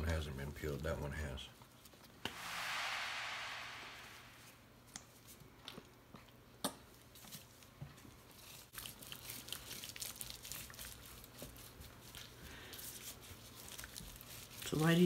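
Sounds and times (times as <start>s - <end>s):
wet rubbing of hands on meat: 8.4s - 15.0s.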